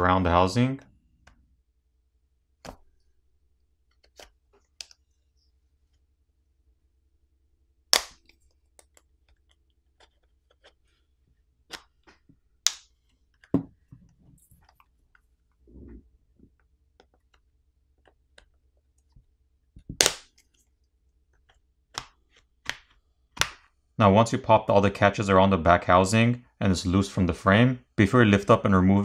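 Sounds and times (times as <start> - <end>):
plastic rubbing: 8.3 - 23.0.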